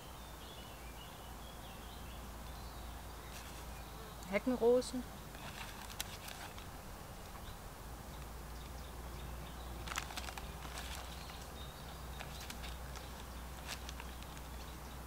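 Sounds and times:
faint bird chirp: 0.0 - 15.0
light clicks and rustles: 5.3 - 7.5, 9.8 - 14.8.

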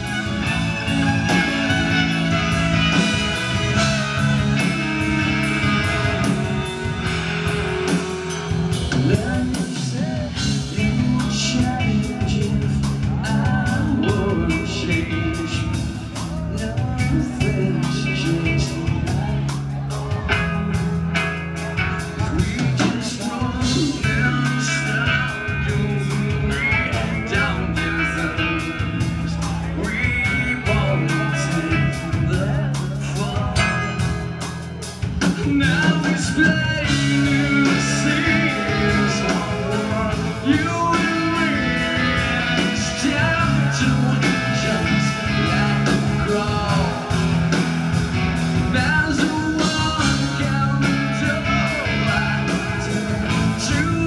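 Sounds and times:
person singing: 0.0 - 20.9, 21.6 - 34.6, 35.2 - 47.6, 48.6 - 54.0
bass guitar: 0.0 - 54.0
electric guitars: 0.0 - 54.0.

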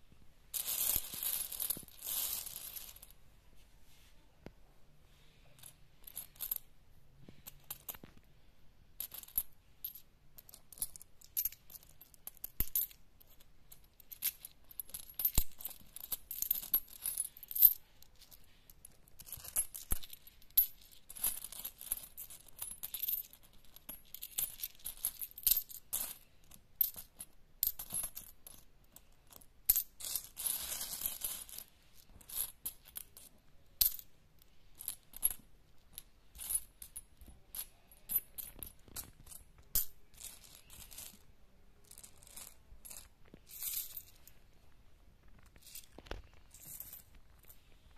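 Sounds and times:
coins clinking and jingling: 0.6 - 3.1, 9.0 - 28.6, 29.3 - 34.1, 34.7 - 41.2, 41.9 - 44.3, 46.5 - 47.5.

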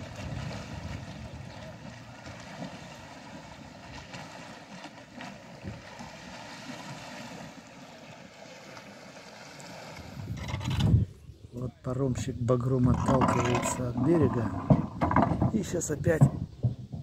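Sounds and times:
wind buffeting microphone: 0.0 - 4.2, 5.6 - 6.0, 10.0 - 17.0
river water: 0.0 - 16.5.

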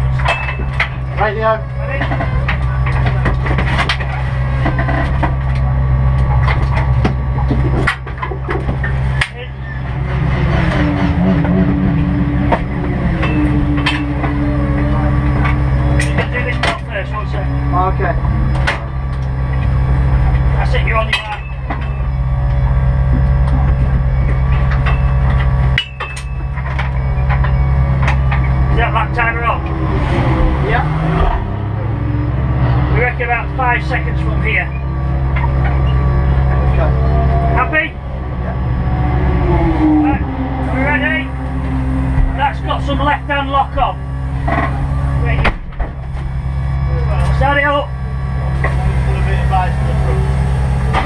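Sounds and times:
knocks clicks and rattles: 0.0 - 29.8
car engine idling: 0.0 - 51.0.

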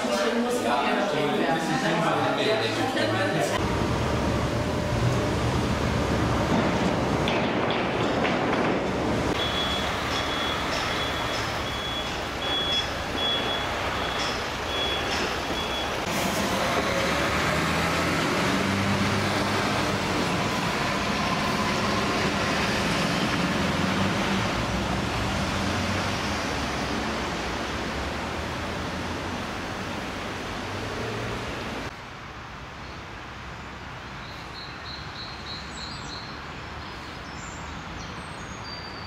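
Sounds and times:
street noise: 0.0 - 39.0
heavy vehicle engine running: 3.6 - 31.9
reversing alarm beeps: 9.4 - 16.1.

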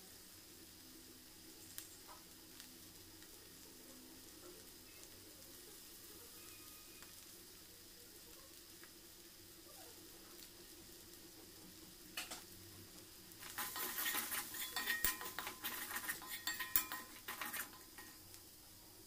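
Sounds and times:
faint sizzle: 0.0 - 19.0
spoon clinking and scraping pan: 13.4 - 18.2
spoon knocking on pan: 13.4 - 18.2.

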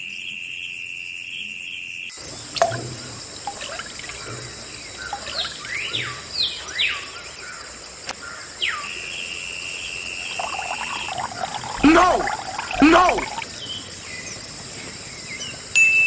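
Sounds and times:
birds whistling: 3.6 - 7.6.

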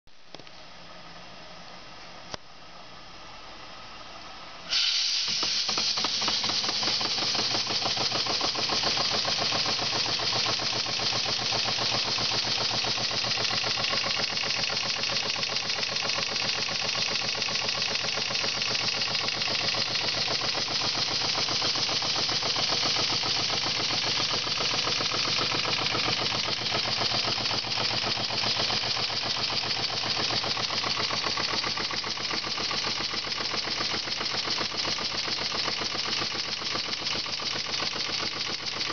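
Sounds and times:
hiss of escaping steam: 4.7 - 7.7
steam engine exhaust chuffing: 4.7 - 38.9.

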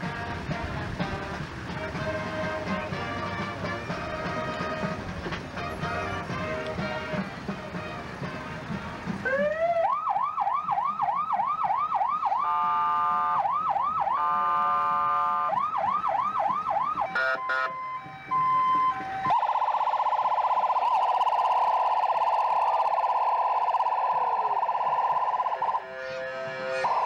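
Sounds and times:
music: 0.0 - 9.5, 25.8 - 27.0
emergency vehicle siren: 0.0 - 27.0
siren chirps: 9.2 - 27.0.

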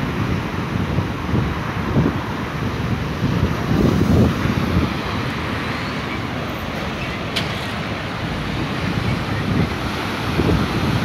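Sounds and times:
wind buffeting microphone: 0.0 - 11.0
ocean surf breaking on rocks: 2.8 - 11.0.

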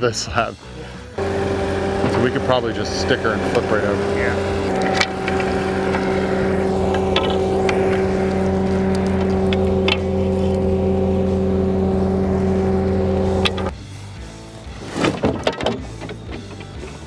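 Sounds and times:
heavy machinery engine running: 1.2 - 13.7.

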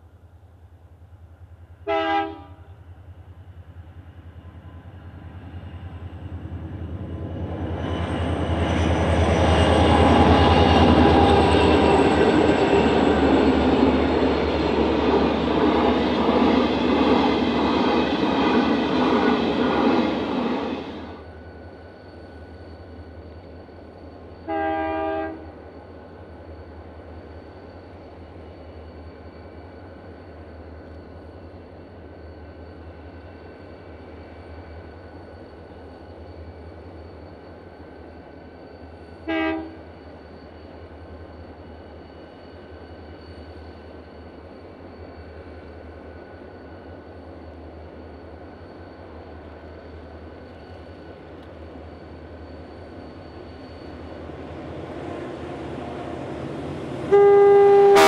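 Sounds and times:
freight train passing: 0.0 - 58.0
diesel locomotive horn: 1.8 - 2.8, 24.4 - 25.6, 39.2 - 39.9, 56.9 - 58.0.

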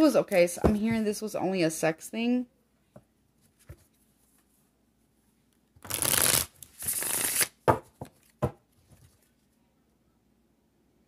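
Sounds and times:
cards being shuffled: 5.8 - 9.3.

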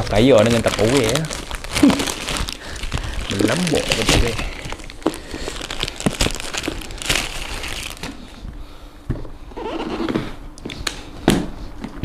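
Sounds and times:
plastic bag crinkling and tearing: 0.0 - 8.4.

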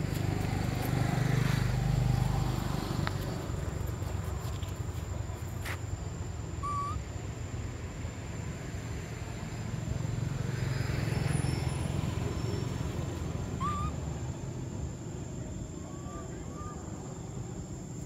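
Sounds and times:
low outdoor rumble: 0.0 - 18.0
rising bird chirp: 6.6 - 7.0, 13.5 - 14.2.

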